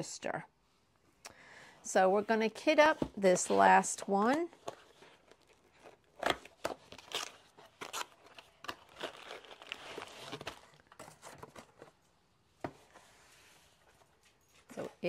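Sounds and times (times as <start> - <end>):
packaging rustling: 4.5 - 12.2.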